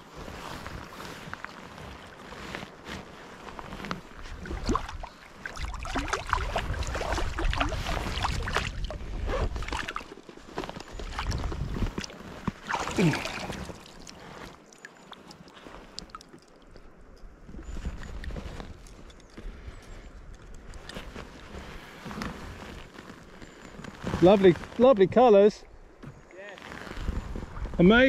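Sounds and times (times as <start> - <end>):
fish splashing in water: 4.4 - 9.0, 11.1 - 16.7.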